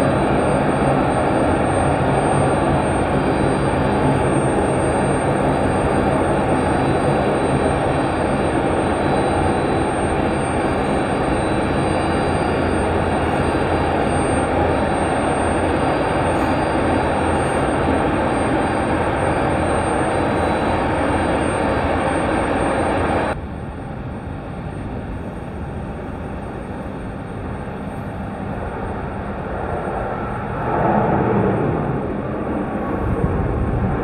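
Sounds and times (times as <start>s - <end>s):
aircraft engines running: 0.0s - 34.0s.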